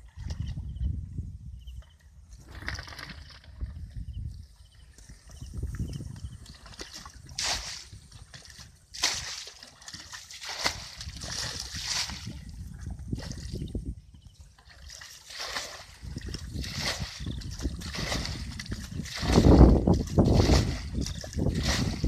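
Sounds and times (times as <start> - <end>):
bucket scooping and pouring water: 2.4 - 4.0, 5.6 - 13.8, 14.6 - 22.0.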